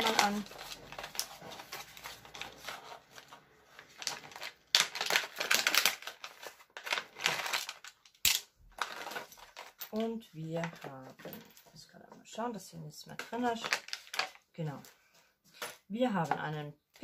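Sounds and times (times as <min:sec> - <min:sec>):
plastic pouch crinkling: 0:00.0 - 0:09.8, 0:13.5 - 0:14.4.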